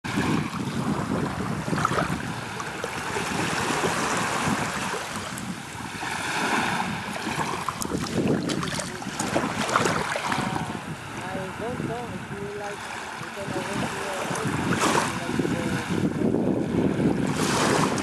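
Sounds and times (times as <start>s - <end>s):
waves lapping on sand beach: 0.1s - 18.0s
water draining through sand: 7.2s - 15.7s.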